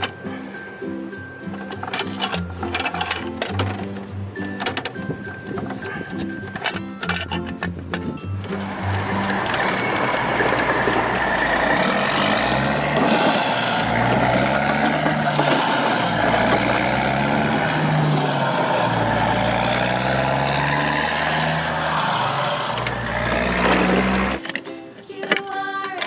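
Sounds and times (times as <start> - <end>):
truck engine revving: 5.5 - 24.5.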